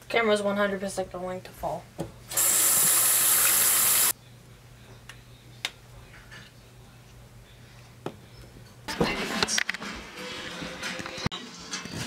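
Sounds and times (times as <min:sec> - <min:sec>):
faucet running water: 0:02.3 - 0:04.1.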